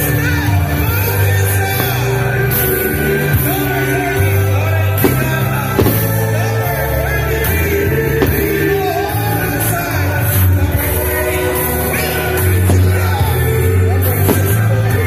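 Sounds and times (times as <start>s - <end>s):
rock music with singing: 0.0s - 15.0s
sharp bangs: 14.1s - 15.0s.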